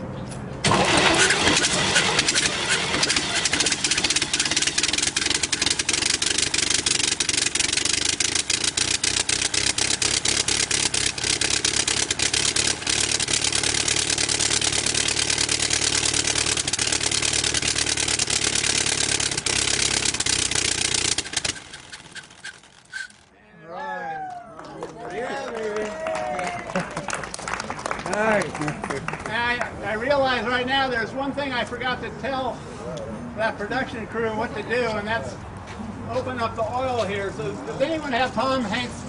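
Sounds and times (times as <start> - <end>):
aircraft engine clattering: 0.6 - 23.3.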